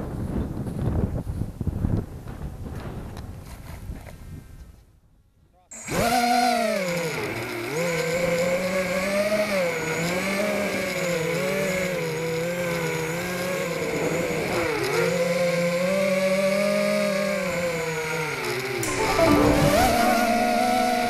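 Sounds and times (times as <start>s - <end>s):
quadcopter motors whining: 5.8s - 18.8s.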